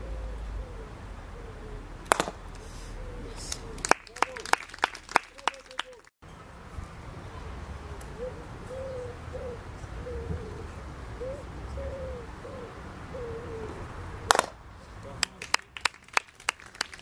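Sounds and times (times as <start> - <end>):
dove cooing: 0.0 - 4.3, 7.4 - 13.9
sharp knock: 2.1 - 2.4.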